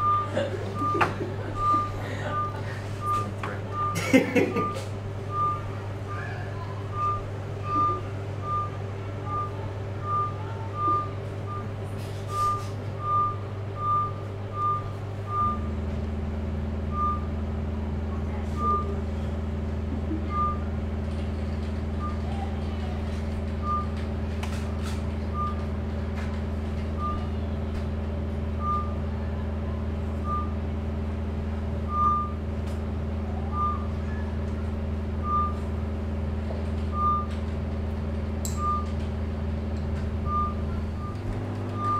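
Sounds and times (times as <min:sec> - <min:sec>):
short high beeps: 0:06.9 - 0:11.7.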